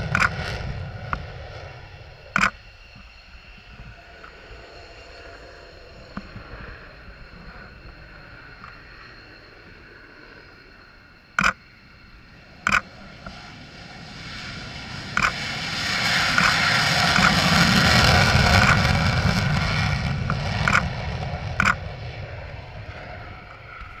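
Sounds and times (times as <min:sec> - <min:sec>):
jet engines rumbling: 0:00.0 - 0:24.0
sharp clicks: 0:00.1 - 0:00.3, 0:02.4 - 0:02.6, 0:11.4 - 0:11.6, 0:12.7 - 0:13.4, 0:15.2 - 0:15.4, 0:20.3 - 0:20.9, 0:21.6 - 0:21.8.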